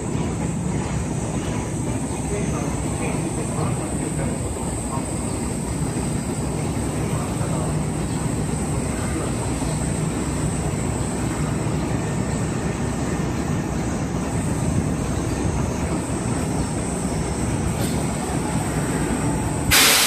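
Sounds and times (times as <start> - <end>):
train wheels rumbling: 0.0 - 20.0.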